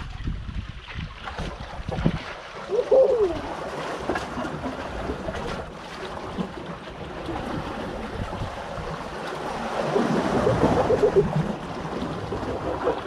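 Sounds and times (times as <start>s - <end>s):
wind buffeting microphone: 0.0s - 3.6s
water lapping: 0.0s - 13.0s.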